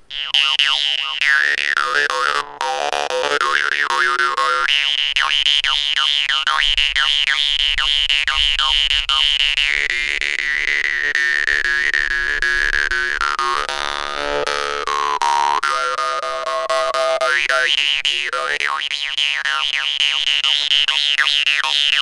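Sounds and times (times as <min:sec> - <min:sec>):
jaw harp twanging: 0:00.1 - 0:09.3.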